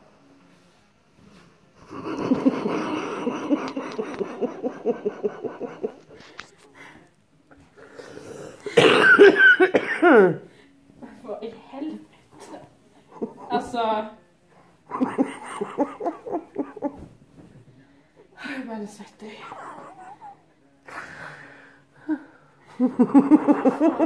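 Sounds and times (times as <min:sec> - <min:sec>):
woman laughing hard: 0:01.9 - 0:06.3, 0:08.8 - 0:10.4, 0:14.9 - 0:17.1, 0:19.4 - 0:21.0, 0:22.7 - 0:24.0.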